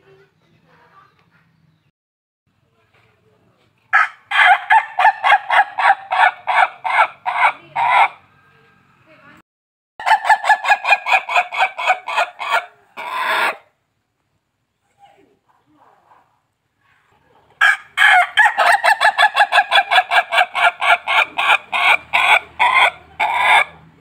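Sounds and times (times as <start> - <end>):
rooster laughing crow: 4.0 - 8.2, 17.6 - 23.7.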